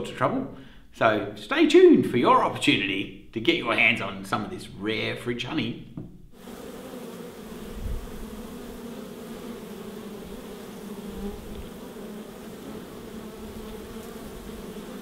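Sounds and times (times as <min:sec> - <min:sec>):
bees buzzing: 0:06.4 - 0:15.0.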